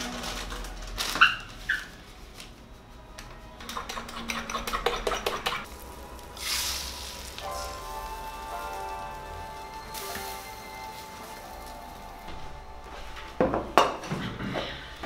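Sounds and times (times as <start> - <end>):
utensil beating eggs in bowl: 3.6 - 5.8
eggs sizzling in frying pan: 5.4 - 12.6.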